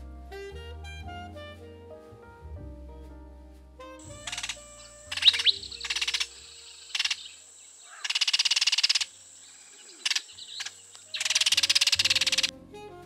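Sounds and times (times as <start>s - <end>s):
bird harsh chatter: 4.0s - 12.5s.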